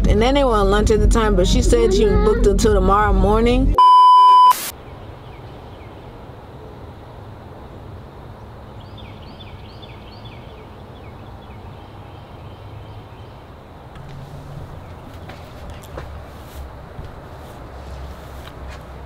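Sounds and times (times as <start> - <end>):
low background rumble: 0.0 - 3.8
bird chirping: 8.8 - 13.6.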